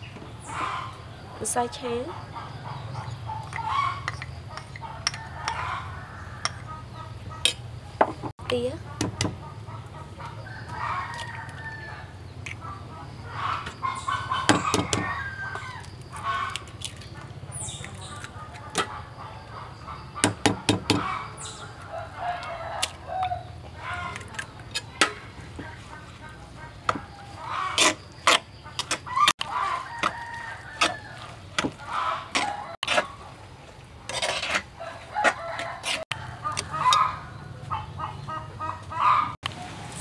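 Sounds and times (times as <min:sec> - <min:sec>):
chickens clucking: 0:00.0 - 0:40.0
eggs cracking against a mortar: 0:03.4 - 0:05.7, 0:14.5 - 0:18.9
rooster crowing: 0:04.8 - 0:06.9, 0:10.3 - 0:12.2, 0:13.3 - 0:16.6, 0:20.9 - 0:24.3, 0:29.1 - 0:32.8, 0:34.8 - 0:40.0.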